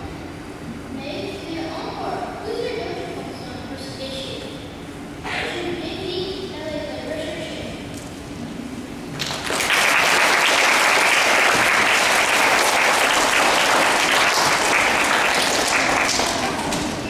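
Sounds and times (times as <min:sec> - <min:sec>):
children clapping: 0:09.2 - 0:17.0.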